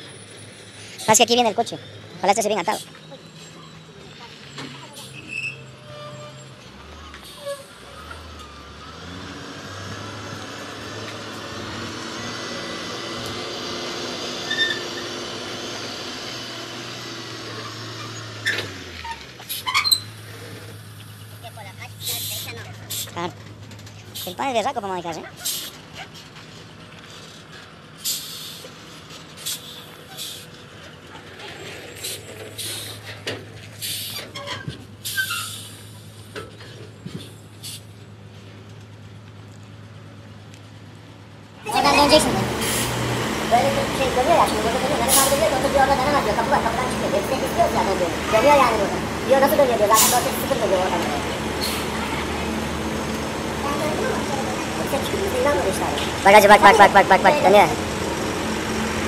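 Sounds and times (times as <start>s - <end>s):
truck diesel engine under load: 0.0s - 59.0s
high squeal: 3.0s - 6.6s, 14.4s - 15.1s
short air hisses: 32.0s - 33.0s, 33.8s - 34.2s.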